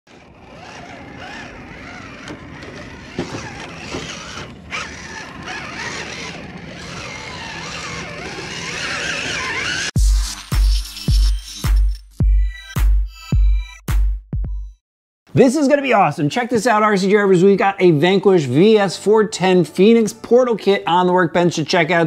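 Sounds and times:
electric motor whine: 0.1 - 10.0.

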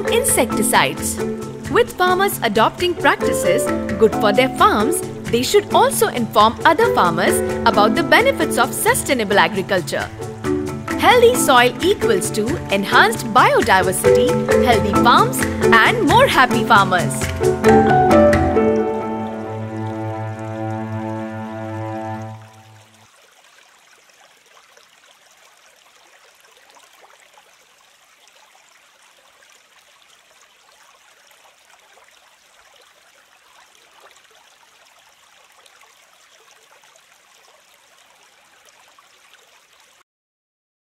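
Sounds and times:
background music: 0.0 - 22.9.

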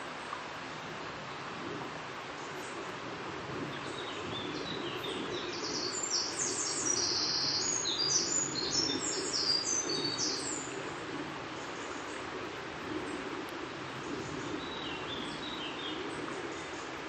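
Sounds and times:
songbird chirping: 3.6 - 10.8.

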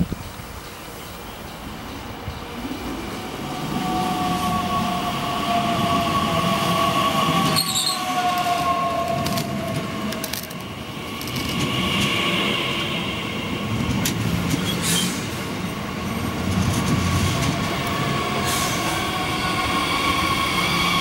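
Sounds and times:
wheels rumbling on rails: 0.0 - 21.0
high brake squeal: 7.4 - 8.9, 14.6 - 15.3.

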